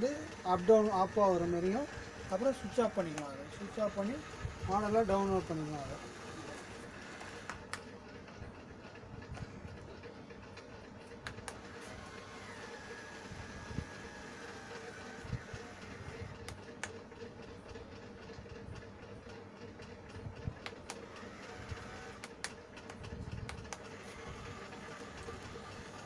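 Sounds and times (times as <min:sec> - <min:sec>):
small electric motor humming: 0:00.0 - 0:10.2, 0:11.0 - 0:18.8, 0:20.1 - 0:26.0
sharp clicks: 0:06.5 - 0:07.9, 0:11.0 - 0:12.1, 0:20.6 - 0:24.0.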